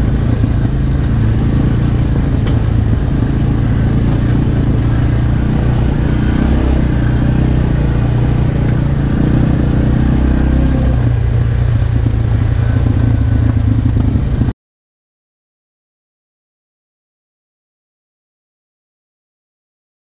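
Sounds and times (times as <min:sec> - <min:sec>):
atv engine running: 0:00.0 - 0:14.5.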